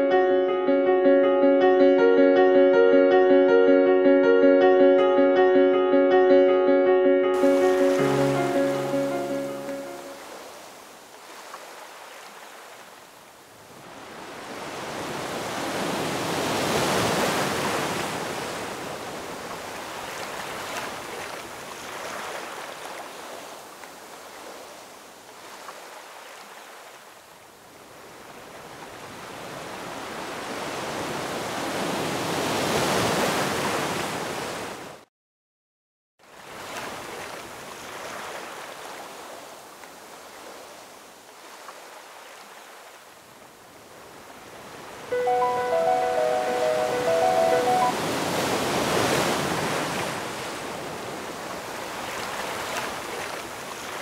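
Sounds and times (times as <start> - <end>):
ocean waves washing in: 7.3 - 27.0, 36.3 - 54.0.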